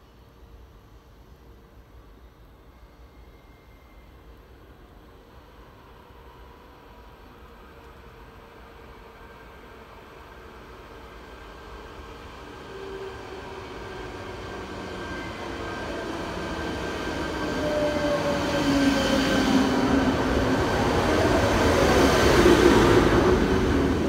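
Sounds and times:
train rumbling: 4.6 - 24.0
train drive whining: 11.4 - 24.0.

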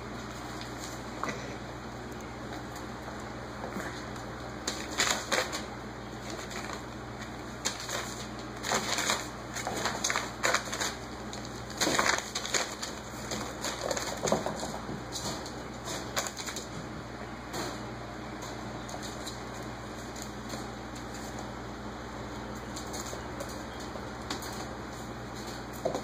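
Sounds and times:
paper crinkling and rustling: 4.6 - 16.8.

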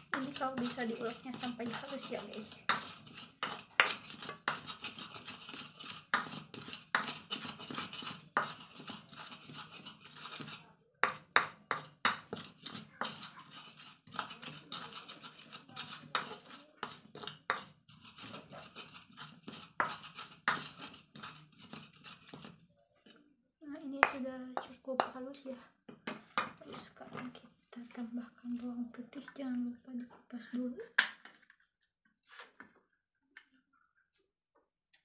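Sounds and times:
pestle knocking: 0.0 - 22.5
pestle grinding in a mortar: 0.0 - 22.6, 24.0 - 27.4.

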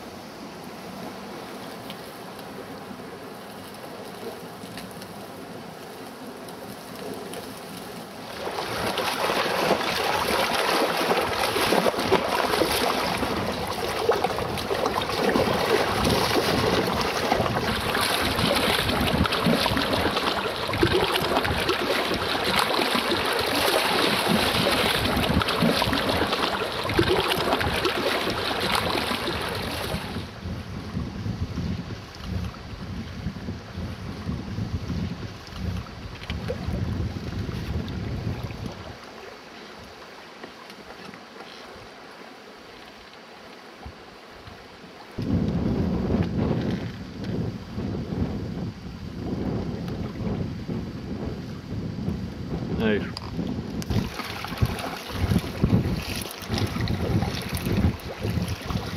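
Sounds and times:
waves splashing: 0.0 - 30.4, 35.3 - 45.2, 52.8 - 58.9
wind buffeting microphone: 8.4 - 39.0, 45.2 - 58.9.

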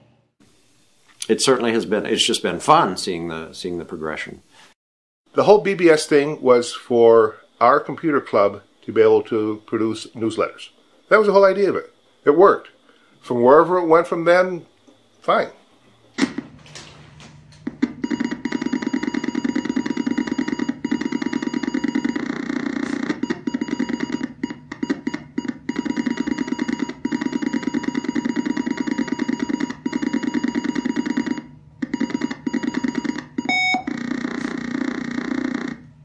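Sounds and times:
electronic beep: 18.0 - 34.6.

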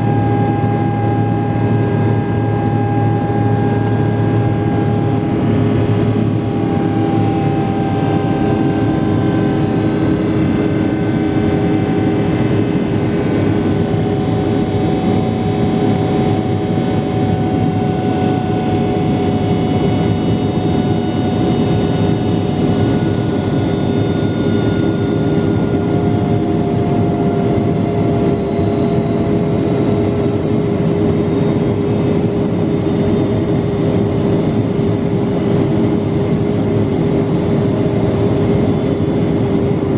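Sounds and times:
faint whining tones: 0.0 - 12.2
jet engines roaring in cabin: 0.0 - 39.9.

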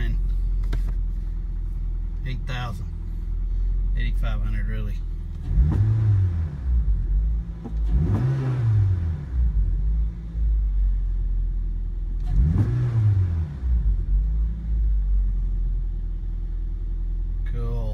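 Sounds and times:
car engine revving and idling: 0.0 - 17.9.

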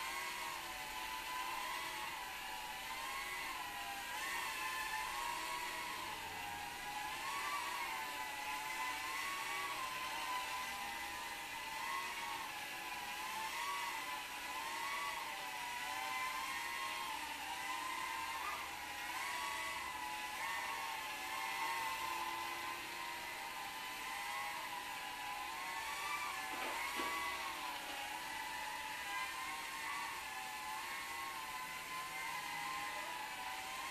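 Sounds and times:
quadcopter motors whining: 0.0 - 33.9.

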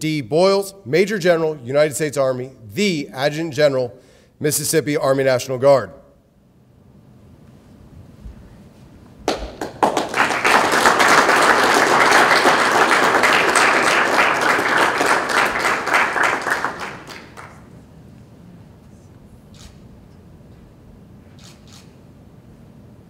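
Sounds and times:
audience applauding: 9.2 - 17.8.

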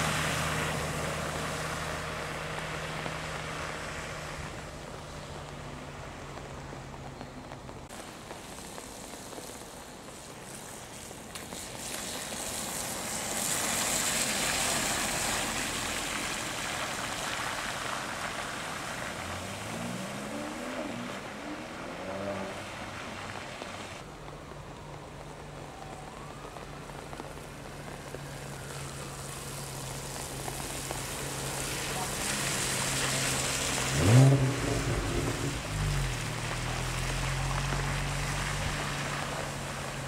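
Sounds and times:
car engine accelerating: 0.0 - 7.9, 13.2 - 24.0, 27.2 - 40.0
car engine low hum: 0.0 - 8.8, 12.4 - 40.0
rain pattering on road: 0.0 - 40.0
tyres hissing through water: 7.9 - 24.0, 27.8 - 40.0.

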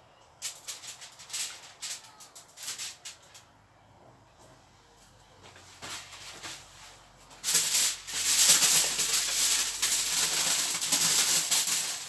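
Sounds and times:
aluminium foil crinkling: 0.4 - 3.5, 5.8 - 12.0
seasoning shaker shaken: 7.4 - 12.0.

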